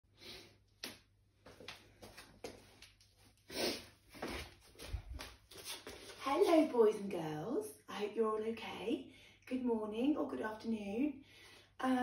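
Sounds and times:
footsteps on laminate floor: 1.4s - 2.9s, 4.1s - 6.7s.

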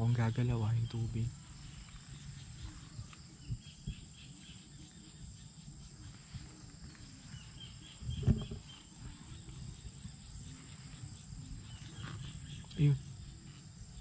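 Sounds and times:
insect drone: 0.0s - 14.0s
pulsing insect chirp: 0.0s - 14.0s
thump: 8.2s - 8.6s.

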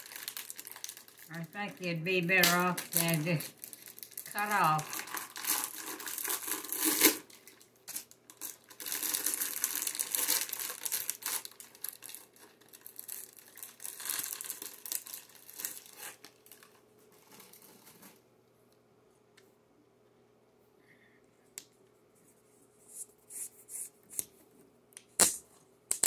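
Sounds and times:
wrapping being crumpled: 0.0s - 18.2s.

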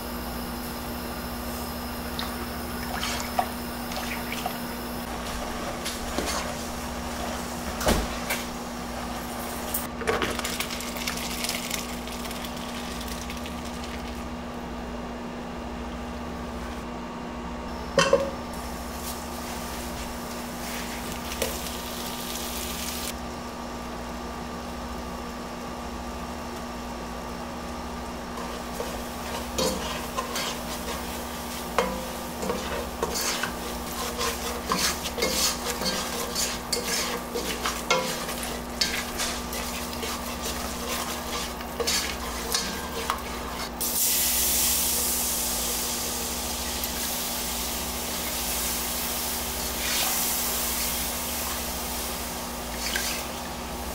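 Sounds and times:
spatula scraping saucepan: 5.6s - 7.4s, 28.3s - 43.8s, 52.7s - 53.3s
light sizzling: 18.0s - 23.2s, 26.5s - 53.9s
milk hissing in hot pan: 28.5s - 53.9s.

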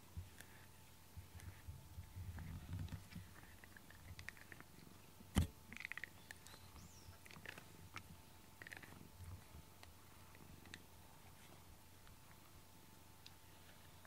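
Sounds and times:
cat purring faintly: 7.2s - 11.7s
brush strokes on fur: 9.2s - 12.6s, 13.4s - 14.0s.

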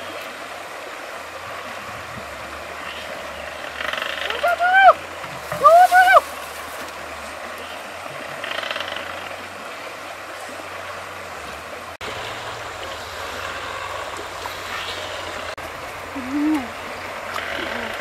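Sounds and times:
river flowing over rocks: 0.0s - 18.0s.

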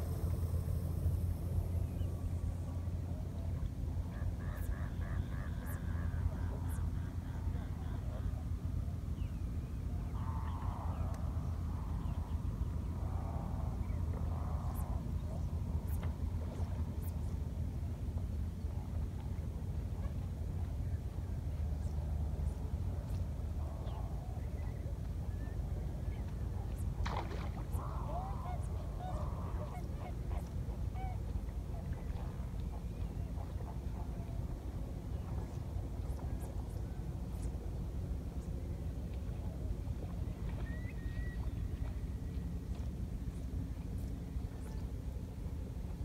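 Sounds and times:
wind rumbling on microphone: 5.5s - 46.0s.

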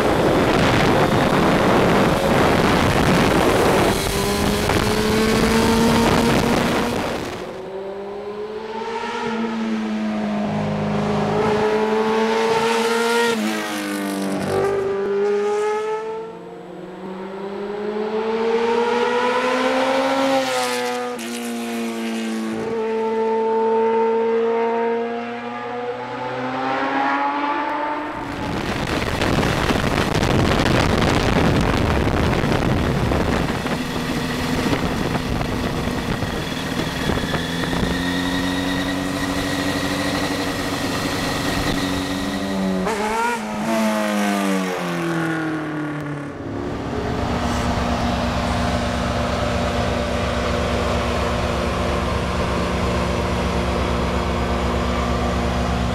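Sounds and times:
wind rush over microphone: 0.0s - 7.6s, 28.1s - 43.1s
motorcycle engine: 0.0s - 55.9s.

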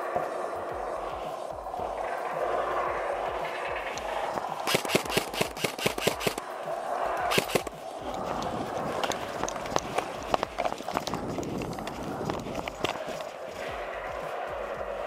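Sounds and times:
steady hiss: 0.0s - 15.0s
airsoft guns firing: 4.6s - 6.4s, 7.3s - 7.7s.

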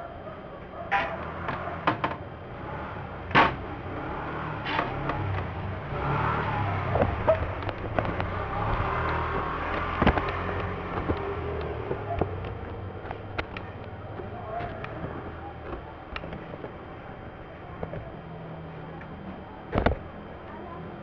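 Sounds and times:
handling clicks and knocks: 7.0s - 16.8s.

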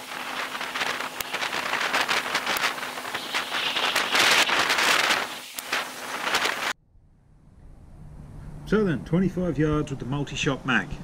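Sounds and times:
gusty wind on microphone: 0.0s - 6.8s.

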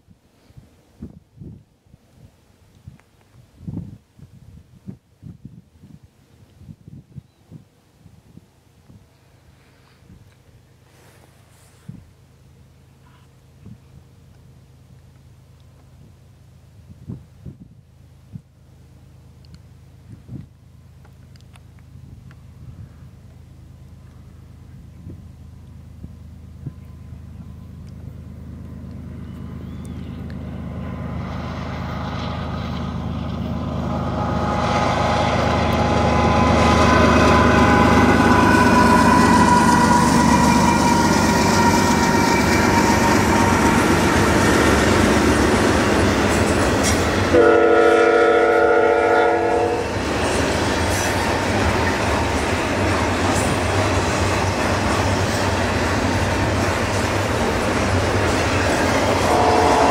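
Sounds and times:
diesel locomotive engine: 8.6s - 59.9s
train cars rumbling and clattering: 24.0s - 59.9s
train horn blast: 33.8s - 44.6s, 46.9s - 50.1s, 59.0s - 59.9s.

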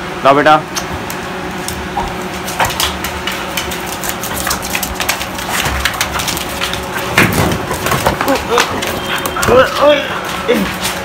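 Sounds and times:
wrapper crackling: 2.8s - 7.0s.

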